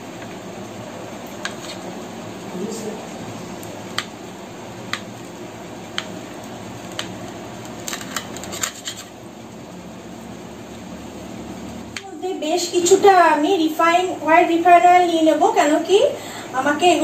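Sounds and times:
steady background hum: 0.0 - 17.0
knife scraping plate: 1.4 - 1.9, 7.9 - 9.1.

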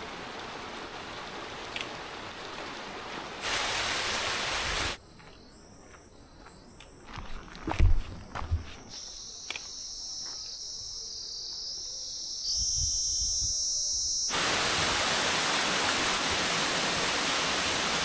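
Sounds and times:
rush of falling water: 0.0 - 5.0, 14.3 - 18.0
footsteps on gravel: 5.2 - 9.0
high-pitched insect drone: 8.9 - 14.6.

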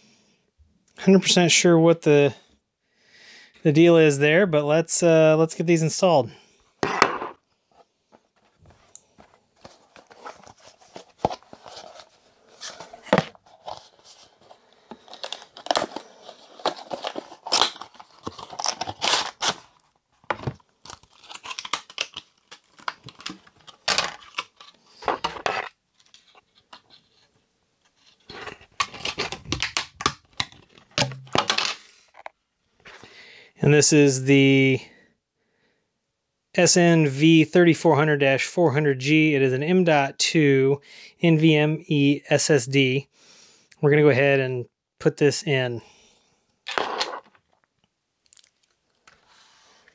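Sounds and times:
cardboard and plastic packaging crinkling: 8.4 - 27.1, 28.0 - 31.6.

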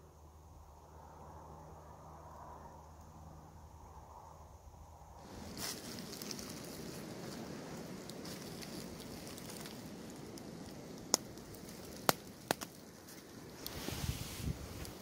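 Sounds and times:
footsteps through dry leaves: 5.2 - 10.8.

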